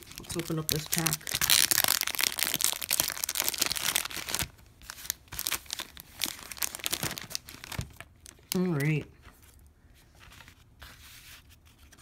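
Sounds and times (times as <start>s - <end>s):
wrapper tearing and crinkling: 0.0s - 9.0s.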